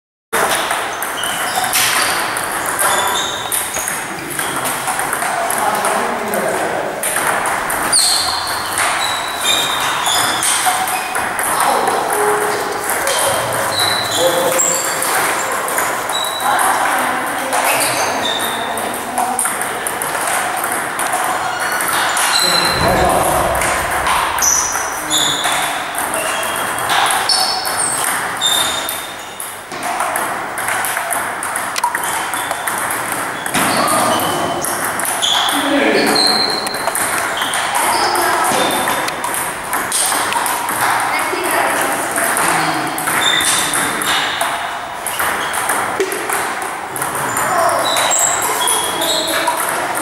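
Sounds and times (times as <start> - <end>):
table tennis balls clicking: 0.4 - 22.5, 26.0 - 35.6, 36.2 - 50.0.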